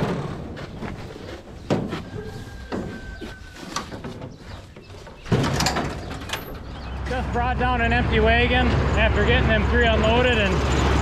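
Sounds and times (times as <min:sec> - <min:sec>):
knocks and clatter: 0:00.0 - 0:07.3.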